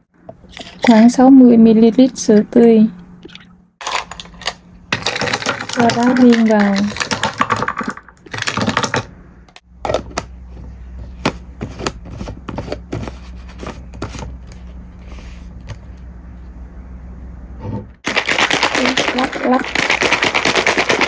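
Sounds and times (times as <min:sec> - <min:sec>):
ice cubes clinking: 0:03.8 - 0:08.8, 0:18.0 - 0:21.0.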